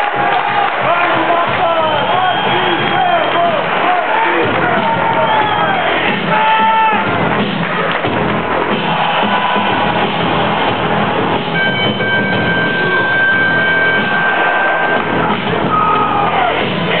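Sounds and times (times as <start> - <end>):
loud rock music: 4.3 - 17.0
held high note: 11.6 - 15.1.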